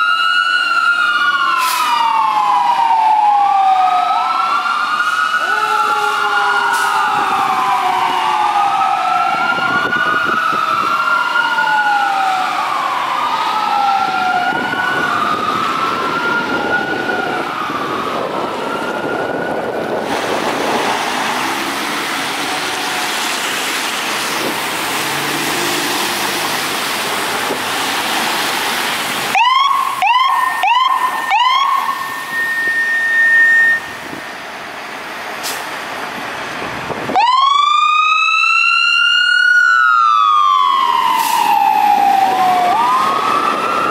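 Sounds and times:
electronic sirens wailing: 0.0s - 23.5s, 29.2s - 34.8s, 37.0s - 43.9s
mechanical siren bursts: 29.3s - 34.4s.

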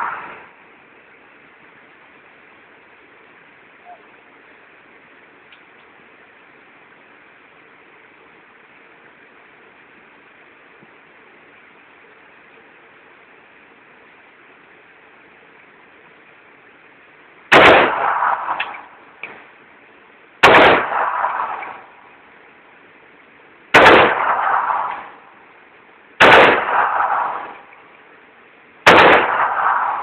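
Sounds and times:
rifle firing bursts: 17.5s - 19.4s, 20.4s - 22.1s, 23.7s - 25.3s, 26.2s - 27.8s, 28.8s - 30.0s.

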